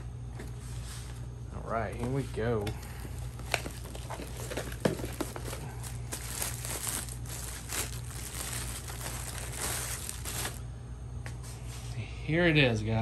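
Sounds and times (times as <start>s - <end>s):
plastic bag crinkling: 2.9s - 10.6s.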